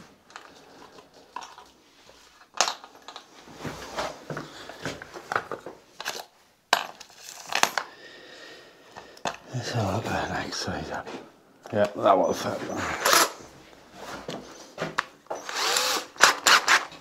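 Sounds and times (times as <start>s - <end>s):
metal drill bits clinking: 6.0s - 7.9s.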